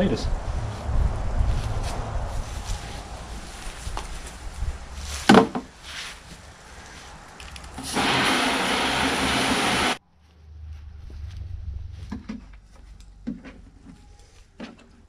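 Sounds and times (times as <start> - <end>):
hose water rushing into watering can: 7.8 - 10.0.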